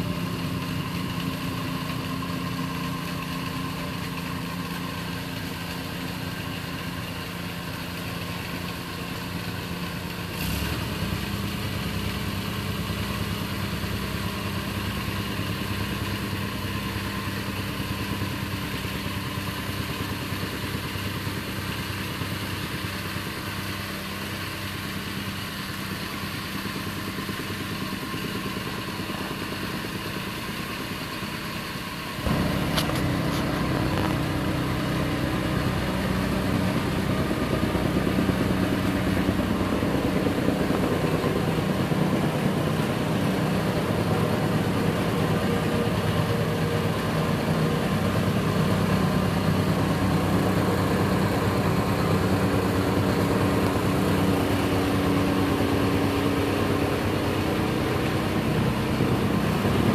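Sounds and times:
rammer engine running: 0.0 - 59.9
rammer foot pounding dirt: 32.2 - 34.4.

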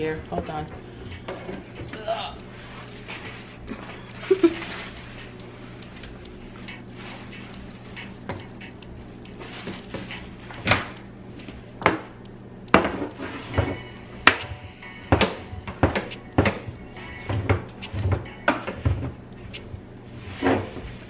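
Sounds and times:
low steady hum: 0.0 - 21.0
sharp taps: 2.8 - 12.1.

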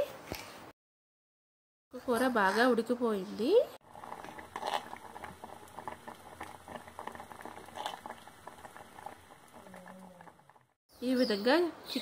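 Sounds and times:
leaves boiling in a pot: 3.8 - 10.8.

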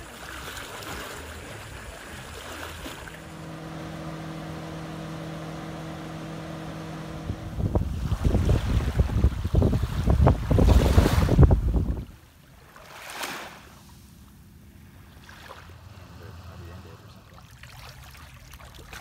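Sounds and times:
low multi-tone hum: 0.0 - 19.0
small sea waves washing: 0.0 - 19.0
wind buffeting microphone: 7.0 - 12.2.

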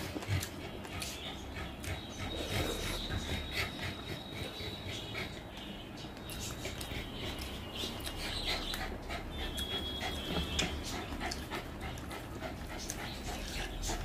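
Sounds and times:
chewing: 5.4 - 14.0.

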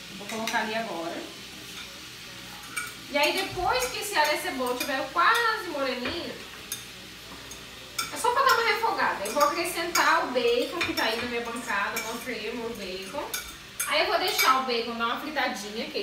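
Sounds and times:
light sizzle of frying: 0.0 - 16.0.

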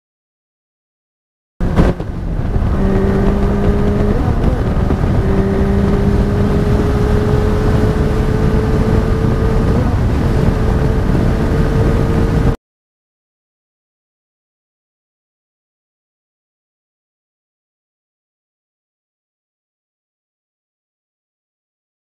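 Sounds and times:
motorcycle engine at speed: 1.6 - 12.6
wind rush on microphone: 1.6 - 12.6.

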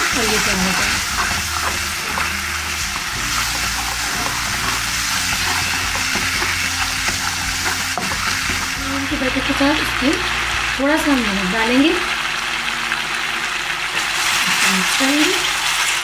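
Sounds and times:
spatula scraping a pan: 0.0 - 8.9
quiet background music: 0.0 - 16.0
sauce sizzling in a pan: 0.0 - 16.0.

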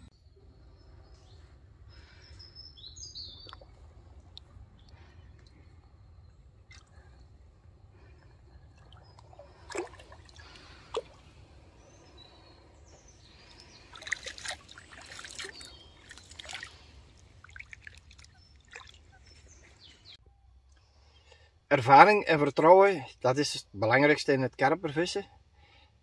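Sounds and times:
water splashing and trickling: 3.2 - 5.7, 6.4 - 20.2.

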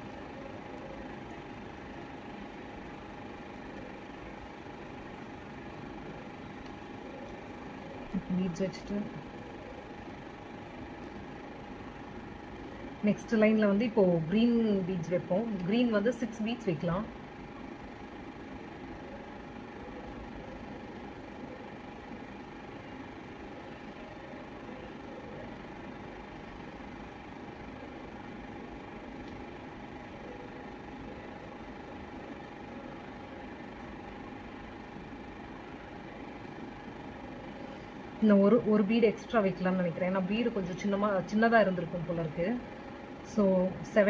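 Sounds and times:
faint constant tone: 0.0 - 44.0
faint constant whine: 0.0 - 44.0
steady background hum: 0.0 - 44.0.

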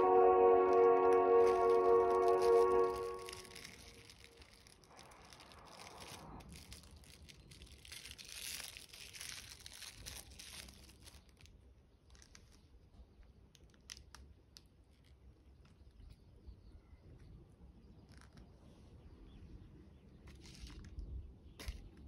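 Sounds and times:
packaging crinkling and tearing: 0.6 - 15.2, 20.3 - 20.9.

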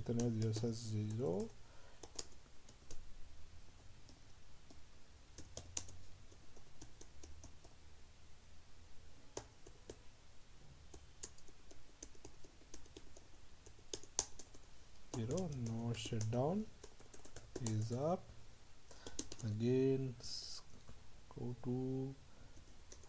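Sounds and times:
typing on computer keyboard: 0.0 - 3.0, 5.4 - 7.8, 10.9 - 18.0, 18.9 - 19.6, 22.6 - 23.0
faint low hum: 0.0 - 23.0.

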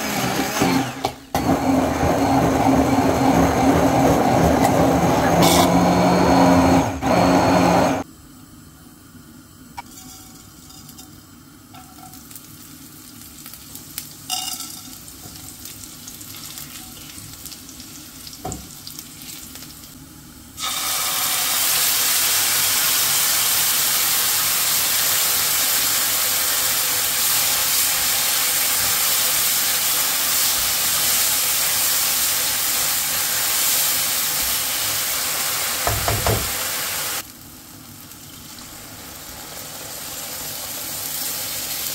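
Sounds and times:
immersion blender running: 0.0 - 8.0, 35.8 - 37.2
paste sizzling in hot oil: 20.6 - 41.9.

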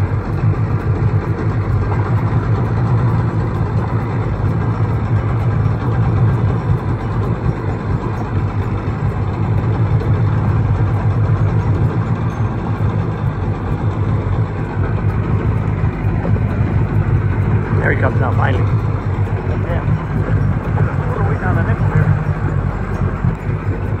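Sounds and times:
watercraft engine drone: 0.0 - 24.0.

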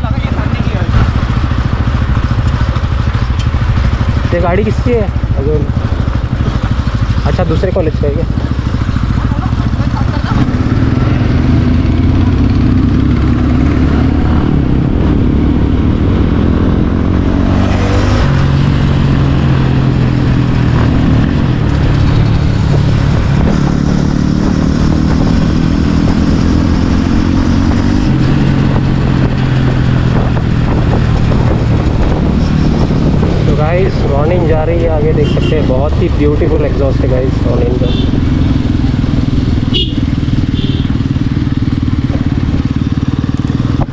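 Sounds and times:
motorbike engine running at speed: 0.0 - 43.9.

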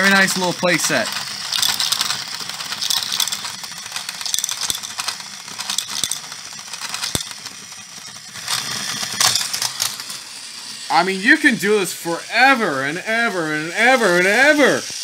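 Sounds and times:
plastic balls clattering: 0.0 - 10.2
plastic mechanism clicking and rattling: 0.7 - 10.2.

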